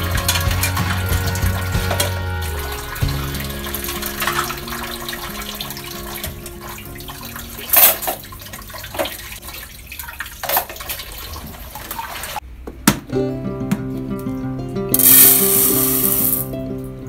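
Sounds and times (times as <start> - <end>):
plates clattering in wire rack: 7.6 - 8.3
steady hiss: 15.0 - 16.5.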